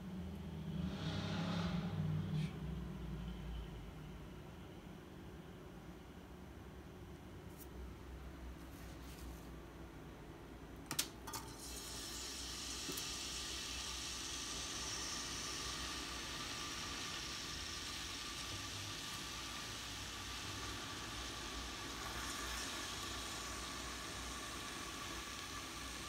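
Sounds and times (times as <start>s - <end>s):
onions sizzling in oil: 11.5s - 26.0s.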